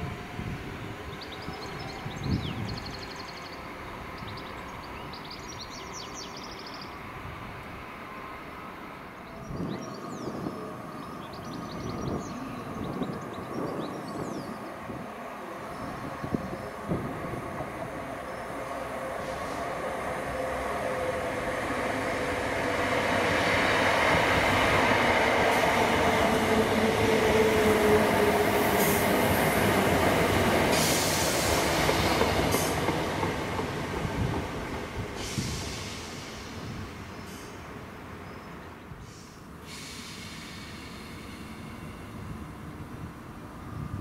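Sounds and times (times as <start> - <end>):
train rumbling: 0.0 - 44.0
high hiss bursts: 35.1 - 37.6, 39.0 - 41.9.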